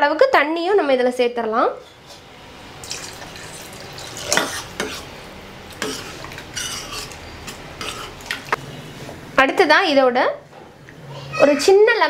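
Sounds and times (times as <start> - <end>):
water pouring into a pot: 2.8 - 4.4
ladle scraping against a pot: 2.8 - 5.1, 5.8 - 8.6.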